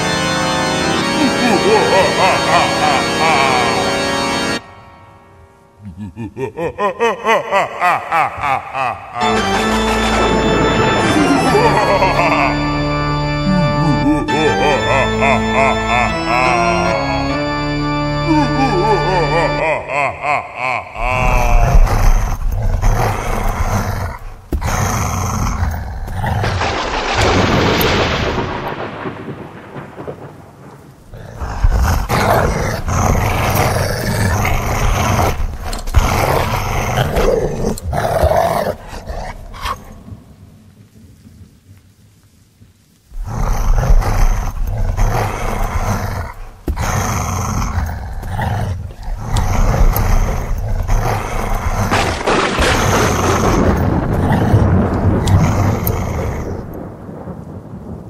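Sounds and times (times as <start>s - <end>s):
loud roaring and growling: 8.4s - 17.7s, 18.4s - 28.6s, 31.1s - 40.0s, 43.2s - 57.0s.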